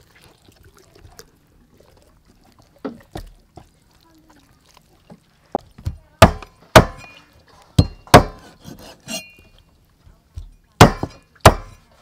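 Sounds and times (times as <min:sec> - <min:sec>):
knife chopping on wooden block: 0:06.2 - 0:07.0, 0:07.8 - 0:09.2, 0:10.8 - 0:11.8.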